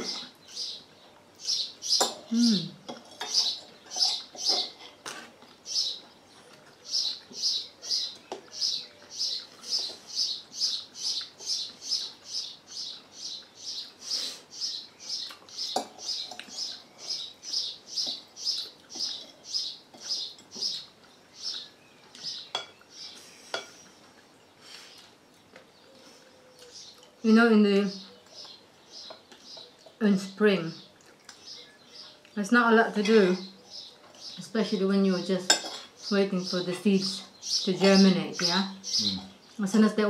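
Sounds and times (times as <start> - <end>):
cutlery clinking on plates: 2.0 - 5.4, 15.7 - 16.6, 22.2 - 22.8, 23.5 - 23.8, 35.5 - 36.0.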